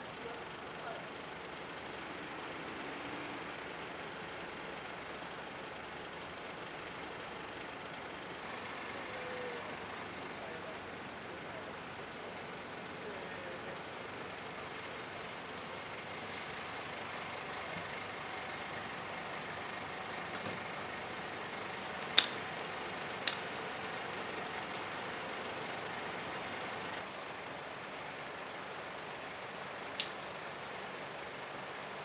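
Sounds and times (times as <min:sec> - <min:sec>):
fire engines idling: 0:00.0 - 0:32.0
sharp clicks: 0:22.0 - 0:22.4, 0:23.2 - 0:23.5, 0:30.0 - 0:30.2.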